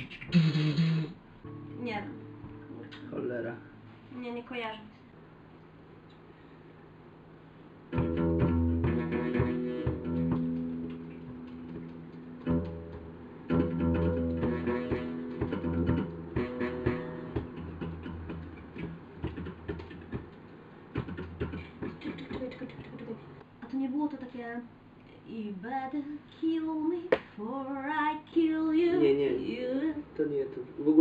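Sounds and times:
acoustic guitar strummed and picked: 1.4s - 3.2s, 7.9s - 20.3s, 20.9s - 22.0s.

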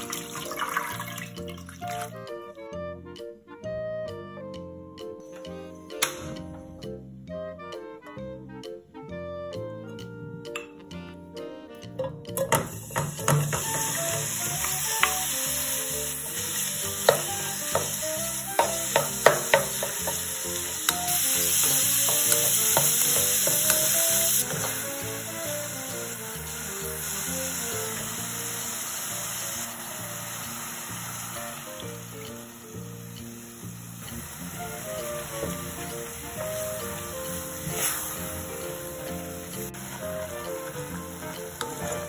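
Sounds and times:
meat sizzling in oil: 0.0s - 2.0s, 12.6s - 42.0s
quiet background music: 0.0s - 42.0s
knocks against the pan: 12.1s - 13.8s, 18.6s - 20.2s.

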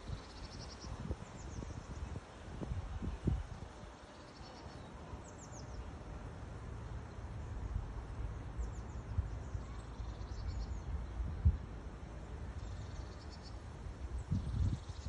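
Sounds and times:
small birds chirping: 0.0s - 2.2s
wind rumbling on microphone: 0.0s - 4.0s, 7.4s - 15.0s.

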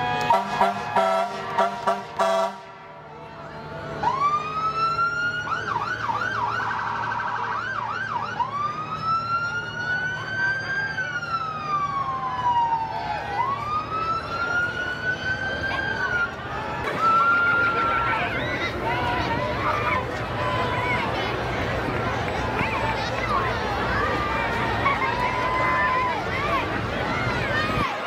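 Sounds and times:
short horn blasts: 0.0s - 3.3s.

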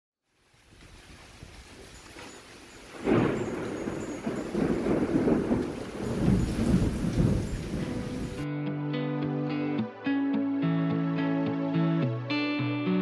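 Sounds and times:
hiss of heavy rain: 0.2s - 8.4s
thunderclap rumbling: 2.8s - 8.4s.

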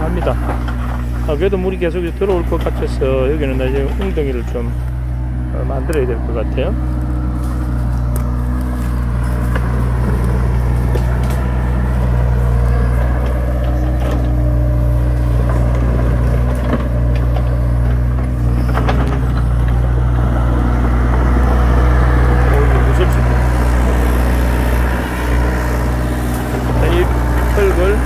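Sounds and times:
excavator diesel engine running: 0.0s - 28.0s.

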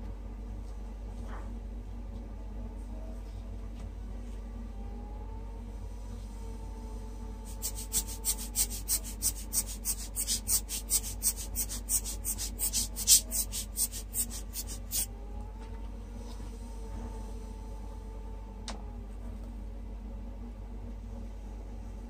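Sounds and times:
marker scratching on paper: 7.5s - 15.1s.

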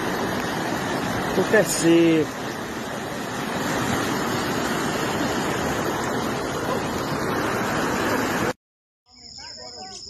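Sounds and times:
flooded river rushing: 0.0s - 8.6s.

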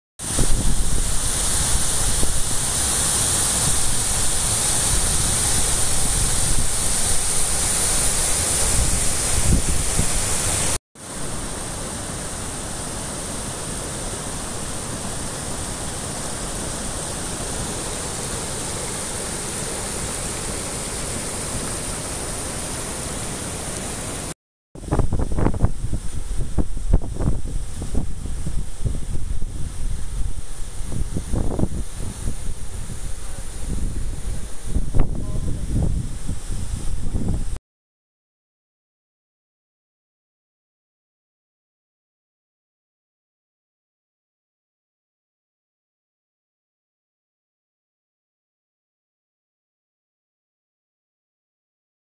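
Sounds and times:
floodwater rushing in river: 0.2s - 24.4s.

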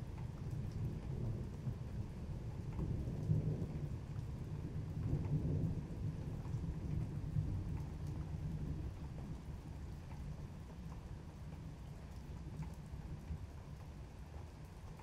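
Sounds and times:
distant thunder rumbling: 0.0s - 10.8s
rain falling: 0.0s - 15.0s
raindrops ticking: 0.0s - 15.0s.

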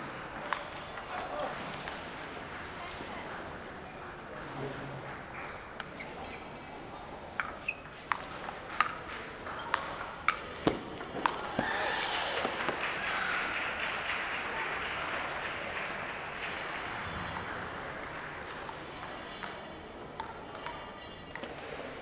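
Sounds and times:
murmur of voices: 0.0s - 7.4s, 8.3s - 22.0s
table tennis ball clicks: 7.4s - 11.6s.

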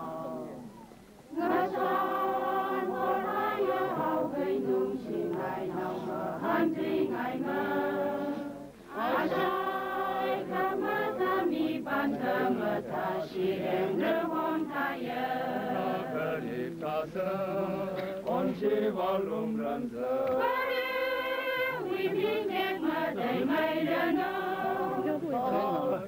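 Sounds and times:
choir singing a hymn: 0.0s - 0.7s, 1.3s - 26.0s.

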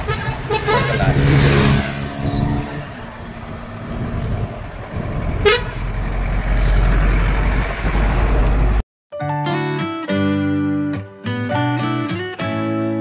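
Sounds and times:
vehicle horn toot: 0.0s - 1.6s, 5.4s - 5.8s
wind rumble on microphone: 2.2s - 8.8s.

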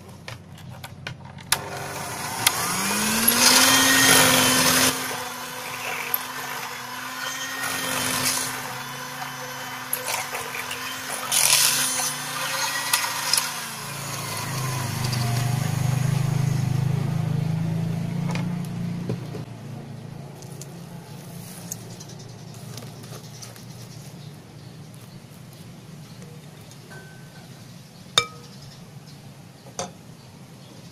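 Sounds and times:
electric hand mixer running: 1.6s - 17.8s.

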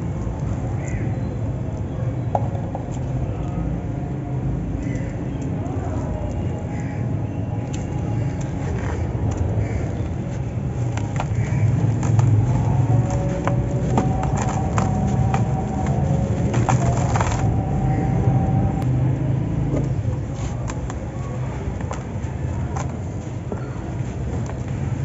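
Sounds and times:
steady low rumble: 7.8s - 25.0s
cement lumps crushed by hand: 8.4s - 18.0s
grit pattering onto pile: 10.8s - 18.1s.

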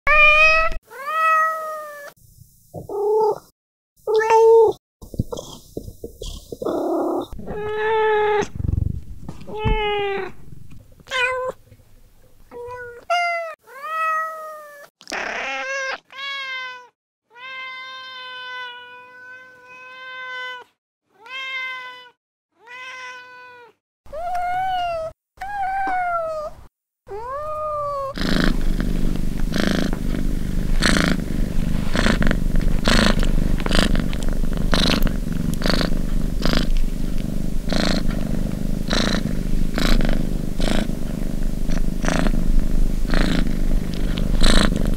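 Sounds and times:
cat meowing: 0.1s - 2.1s, 7.2s - 8.6s, 9.4s - 10.5s, 11.1s - 11.6s, 12.5s - 28.2s
cat purring: 5.0s - 13.0s, 27.4s - 44.9s.

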